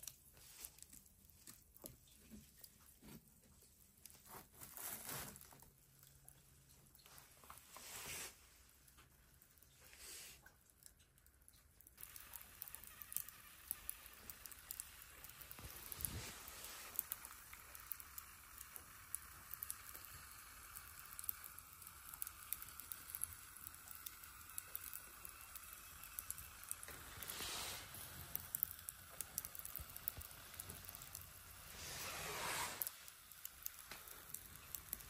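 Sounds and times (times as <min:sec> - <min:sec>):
charcoal embers crackling: 0:00.0 - 0:35.0
soft steady hiss: 0:00.0 - 0:35.0
fat sizzling on coals: 0:07.0 - 0:10.8, 0:11.8 - 0:35.0.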